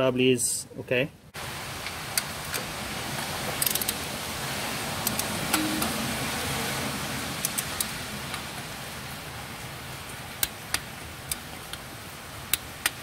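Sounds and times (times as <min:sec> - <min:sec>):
metallic clicks of hand tools: 0:03.6 - 0:04.0.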